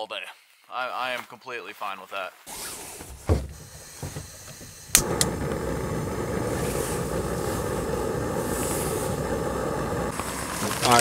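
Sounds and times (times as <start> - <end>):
gas burner hissing: 2.5 - 11.0
stove igniter click: 4.8 - 6.4.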